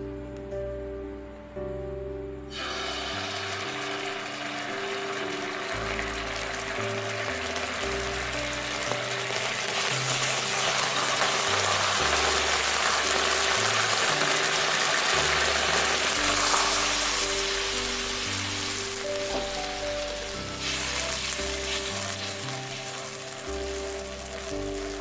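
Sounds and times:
sauce sizzling in hot oil: 2.5 - 25.0
background music with bass notes: 5.4 - 25.0
spatula stirring in wok: 20.3 - 25.0.

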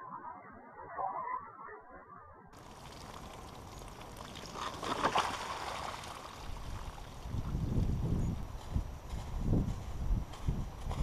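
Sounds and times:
liquid splashing: 2.6 - 7.2.

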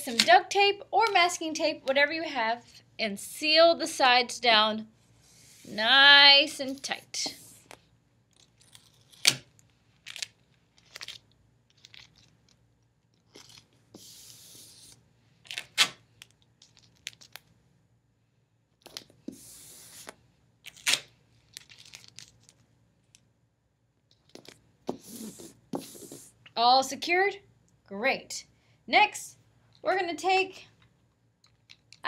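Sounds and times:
tape ripping off roll: 15.5 - 16.0, 20.7 - 21.1.

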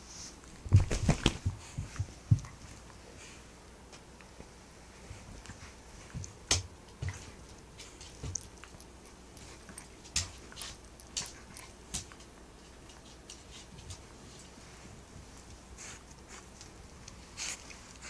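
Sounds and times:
dog play-biting sleeve: 0.7 - 2.6.

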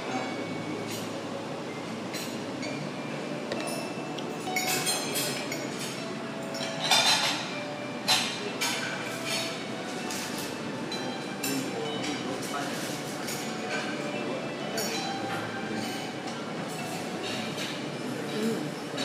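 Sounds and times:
cafe background hum: 0.0 - 19.0
clinks and rustles of handling: 3.6 - 14.0.

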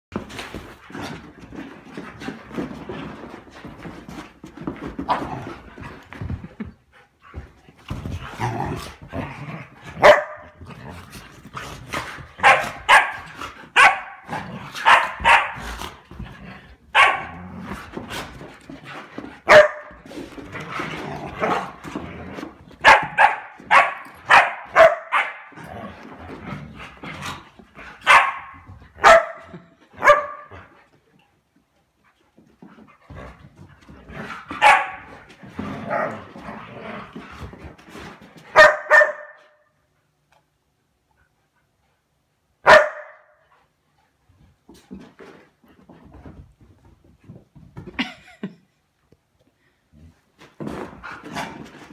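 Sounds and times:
dogs barking sharply: 10.0 - 10.6, 12.4 - 15.7, 16.9 - 17.4, 19.4 - 20.0, 22.8 - 25.6, 28.0 - 30.6, 34.6 - 35.1, 38.5 - 39.6, 42.6 - 43.4.

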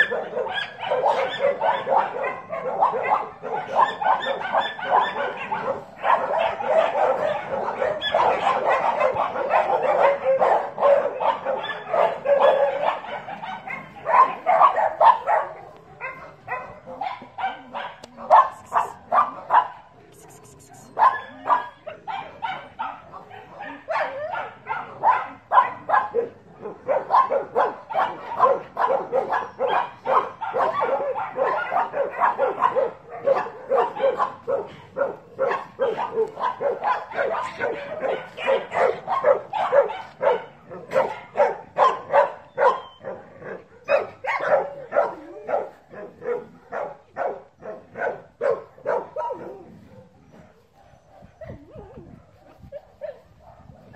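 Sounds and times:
dog barking and yipping: 0.0 - 53.9.

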